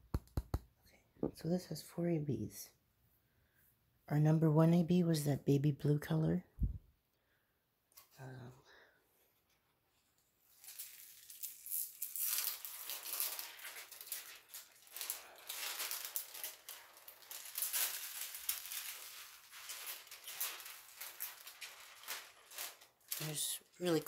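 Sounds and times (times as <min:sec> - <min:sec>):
plastic film crinkling: 0:10.4 - 0:24.0.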